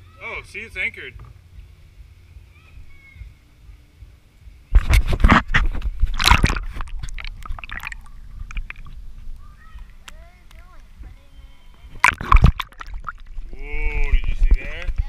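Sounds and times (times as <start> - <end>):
splashing into water: 4.8 - 9.0, 11.9 - 13.6
muffled underwater sloshing: 4.9 - 15.0.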